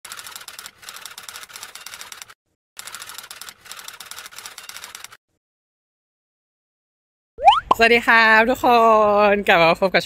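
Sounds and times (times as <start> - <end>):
rapid clatter of clicks: 0.1 - 5.2.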